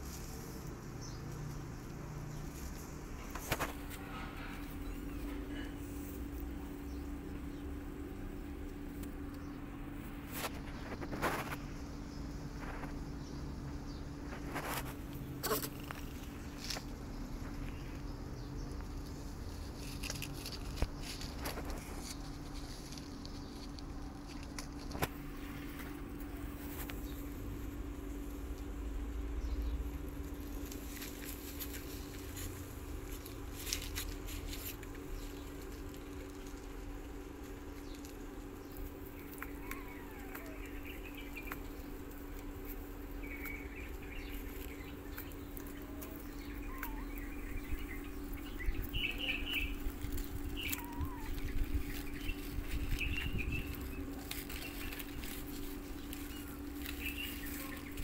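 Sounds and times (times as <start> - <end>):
kitten chirps and squeaks: 46.0 - 47.5, 50.4 - 53.6.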